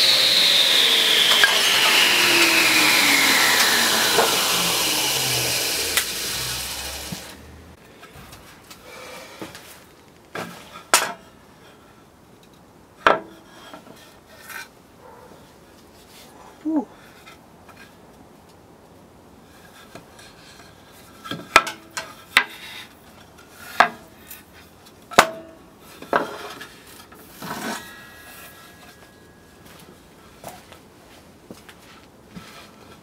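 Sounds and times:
wood scraping across metal table: 25.8 - 29.7.

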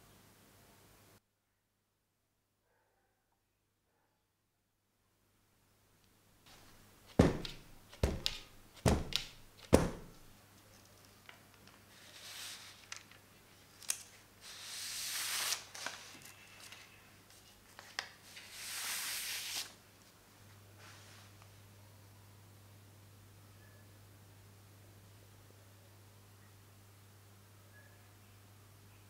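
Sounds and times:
metal baking tray knocking on table: 7.2 - 10.2
paper sheets sliding out: 11.9 - 13.1, 14.4 - 16.9, 17.8 - 19.8.

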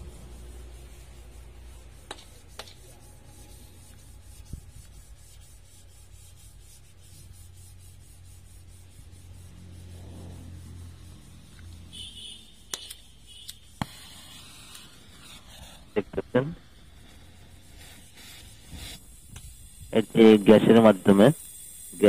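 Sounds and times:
welding torch flame rumbling: 0.0 - 22.0.

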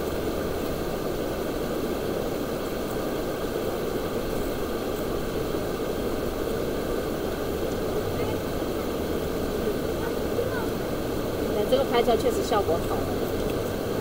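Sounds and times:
river rapids rushing over rocks: 0.0 - 14.0.

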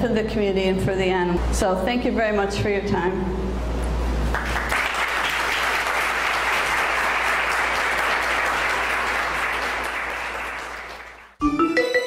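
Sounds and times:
audience applauding: 4.3 - 11.4.

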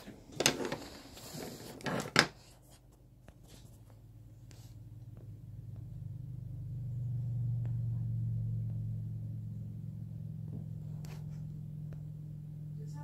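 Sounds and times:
low droning hum: 4.0 - 13.0.

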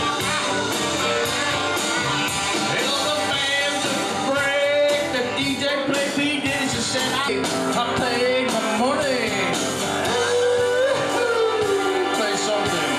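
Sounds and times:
backing track over sound system: 0.0 - 12.9
man singing into a microphone: 2.7 - 12.9.

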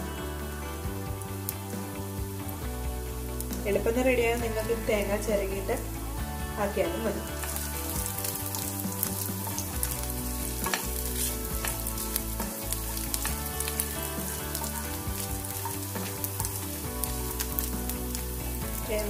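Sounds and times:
coconut frying in oil: 0.0 - 19.0
spatula stirring in pan: 6.8 - 19.0.

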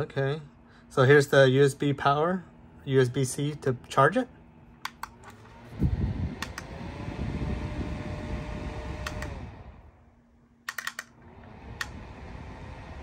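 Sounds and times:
small fan blowing: 0.0 - 13.0
fan button clicking: 4.8 - 5.4, 6.3 - 6.8, 8.9 - 9.5, 10.7 - 12.0.

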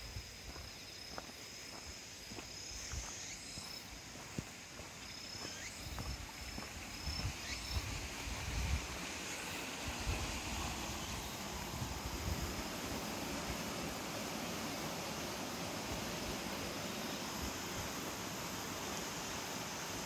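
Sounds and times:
low rumbling wind: 5.9 - 9.2, 9.8 - 14.1.

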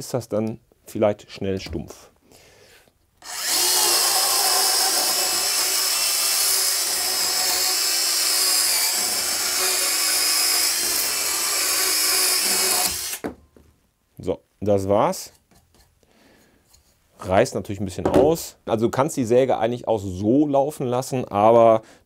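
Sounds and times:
mini chainsaw cutting wood: 3.2 - 13.2.

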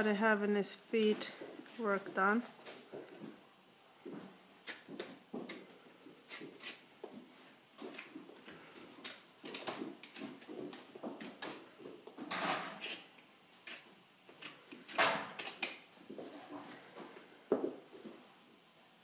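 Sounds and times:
hand tool scraping hoof: 4.6 - 6.9, 12.3 - 15.7.

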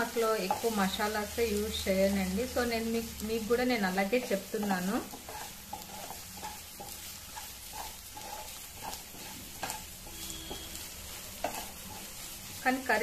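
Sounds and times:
onions sizzling in oil: 0.0 - 13.0
wooden spatula scraping pan: 0.3 - 1.0, 3.9 - 13.0.

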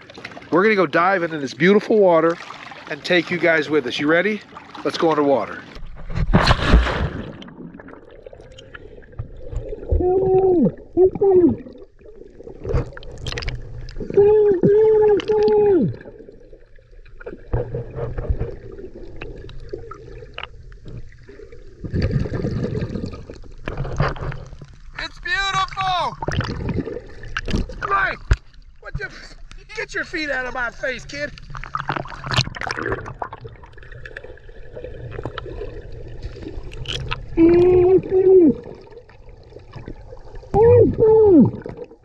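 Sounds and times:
muffled underwater water gurgling: 7.3 - 24.6, 31.2 - 42.0
muffled person calling out: 10.0 - 11.6, 14.1 - 16.0, 25.0 - 26.2, 37.4 - 38.6, 40.6 - 41.6
underwater clicks: 12.6 - 16.2, 17.0 - 21.2, 26.2 - 28.6, 31.3 - 34.4, 36.6 - 37.8.

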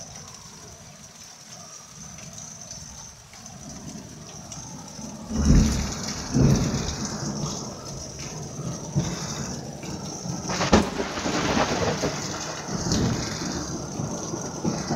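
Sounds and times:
rain hissing: 0.0 - 14.9
thunder rumbling: 4.6 - 14.9
sharp thunder clap: 10.5 - 14.9.

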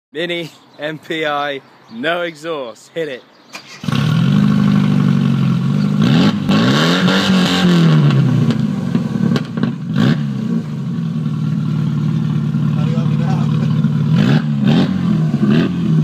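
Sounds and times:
exhaust pops: 3.5 - 10.2
car engine revving and idling: 3.8 - 16.0.

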